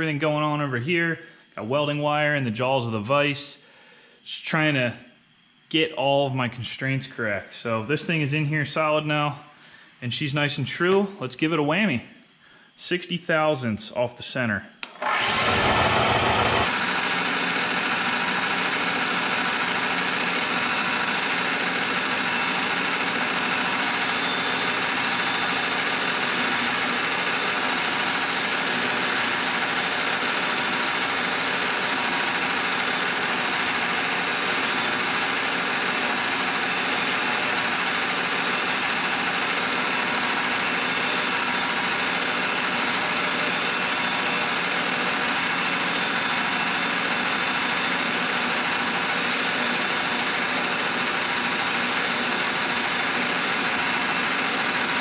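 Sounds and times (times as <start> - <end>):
milling machine cutting metal: 14.8 - 55.0.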